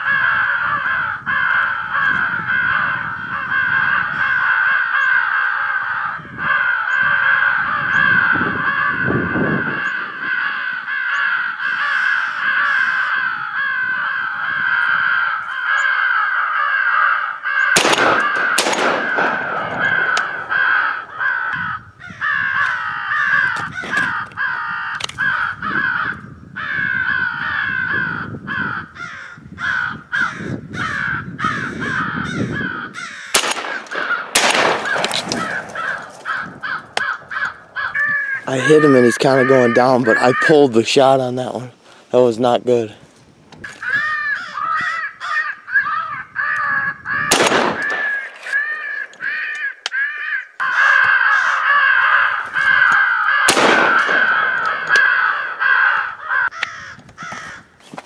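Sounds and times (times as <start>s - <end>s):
crows cawing: 0.0s - 42.3s, 43.6s - 58.0s
sharp loud bangs: 17.8s - 21.2s, 33.3s - 36.3s, 47.3s - 48.4s, 53.5s - 55.3s.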